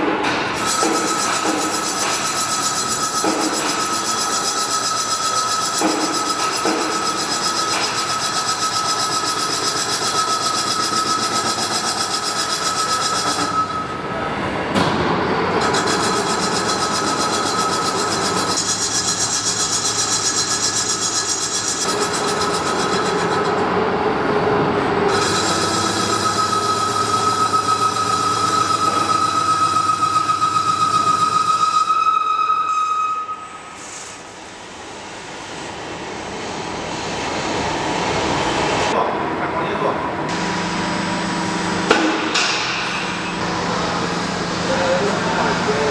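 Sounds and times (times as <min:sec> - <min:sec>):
high machine whine: 0:00.5 - 0:38.8
lathe cutting metal: 0:00.6 - 0:14.0, 0:15.6 - 0:23.8, 0:25.0 - 0:32.4.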